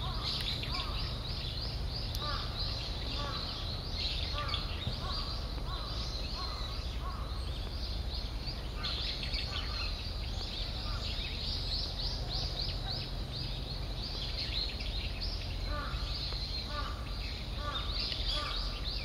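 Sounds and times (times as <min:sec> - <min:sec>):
small birds chirping: 0:00.0 - 0:19.0
steady low hum: 0:00.0 - 0:19.0.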